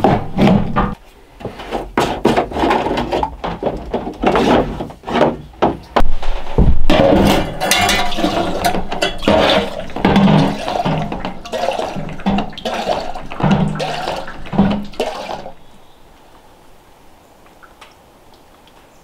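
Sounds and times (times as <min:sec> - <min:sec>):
water gushing into metal sink: 0:06.9 - 0:15.7.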